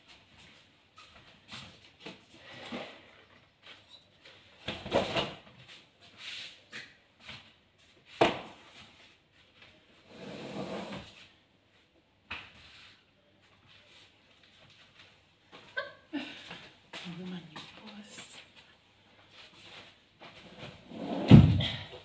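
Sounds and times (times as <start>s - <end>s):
knocks and thuds of boards: 21.3s - 21.8s.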